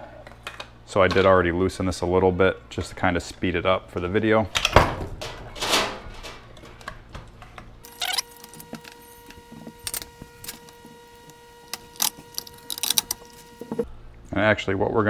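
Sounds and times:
lamp base and wires handled: 0:05.5 - 0:13.8.

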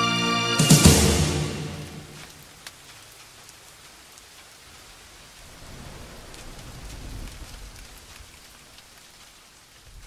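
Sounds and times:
steady rain: 0:00.0 - 0:10.0
low rumble: 0:05.4 - 0:08.2.

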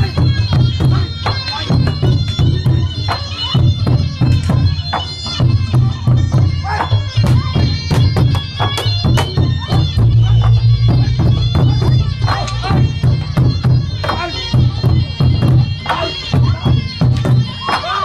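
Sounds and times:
barrel drums beaten hard: 0:00.0 - 0:02.9, 0:03.5 - 0:18.0
reedy wind melody: 0:05.5 - 0:17.6.

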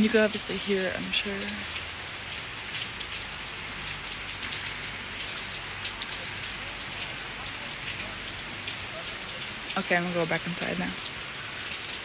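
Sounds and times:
raindrops ticking close: 0:00.0 - 0:12.0
steady rain falling: 0:00.0 - 0:12.0.

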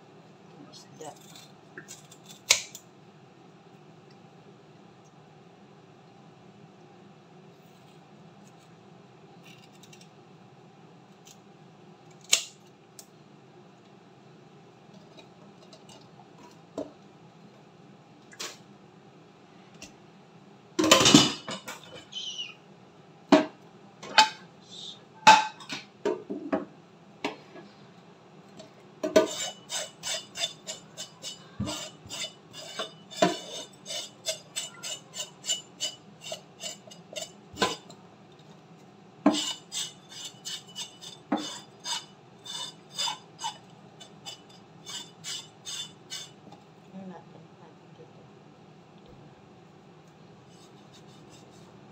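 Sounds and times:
knife scraping fish skin: 0:01.1 - 0:02.8, 0:09.4 - 0:10.1, 0:29.2 - 0:37.8, 0:39.3 - 0:43.6, 0:44.2 - 0:46.4.

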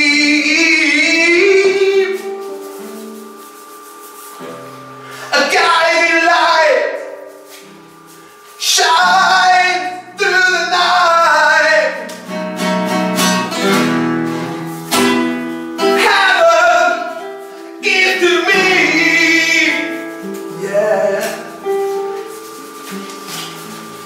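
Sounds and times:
person singing long phrases: 0:05.3 - 0:07.2, 0:08.6 - 0:12.1, 0:17.8 - 0:19.8.

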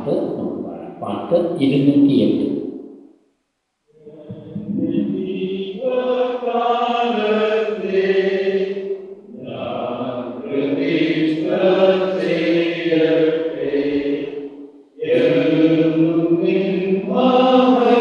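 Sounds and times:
hymn sung in long notes: 0:04.0 - 0:18.0.

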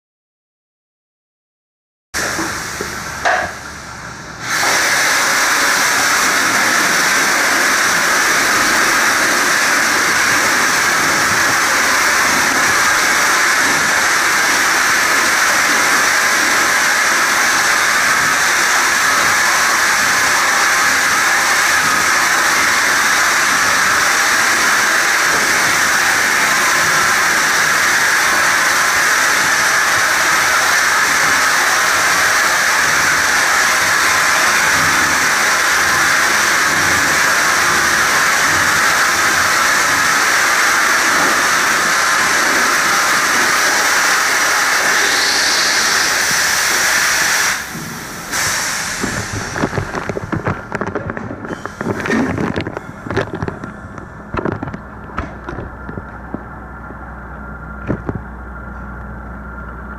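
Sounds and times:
spray gun air hissing: 0:04.4 - 0:49.8.

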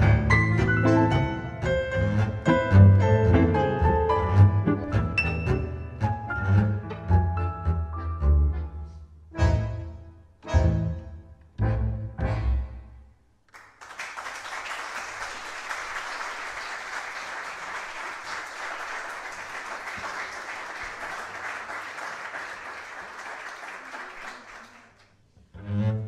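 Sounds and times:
bandoneon and bowed strings: 0:00.0 - 0:12.9, 0:25.5 - 0:26.0
audience applauding: 0:13.5 - 0:25.2.

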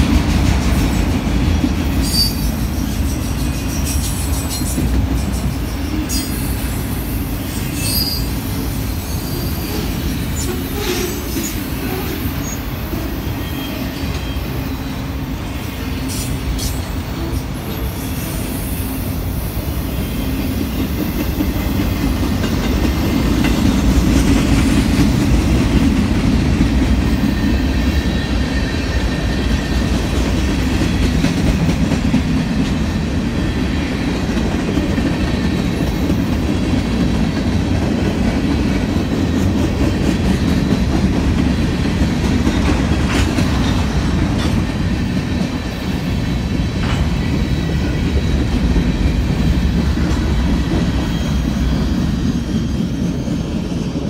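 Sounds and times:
clickety-clack over rail joints: 0:00.0 - 0:07.0, 0:20.0 - 0:54.0
train wheels rumbling on rails: 0:00.0 - 0:54.0.

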